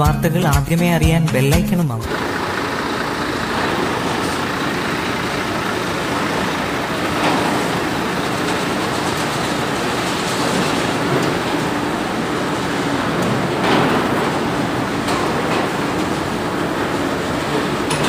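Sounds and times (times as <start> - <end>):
machinery mechanical drone: 2.0 - 18.0.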